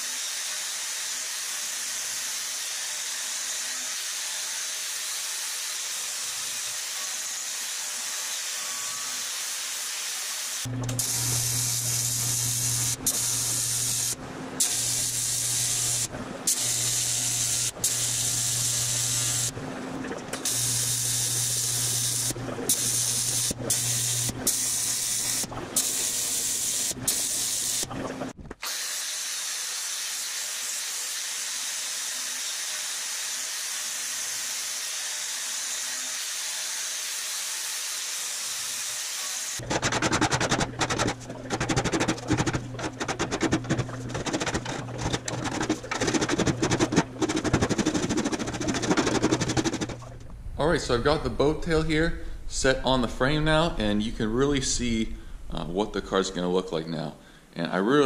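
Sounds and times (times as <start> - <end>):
welder buzzing and hissing: 0.0 - 19.6, 20.3 - 39.8.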